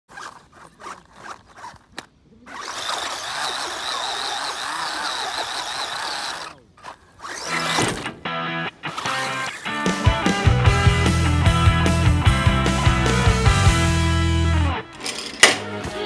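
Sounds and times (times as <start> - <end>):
toy car motor whirring: 0.1 - 7.9, 8.9 - 9.7.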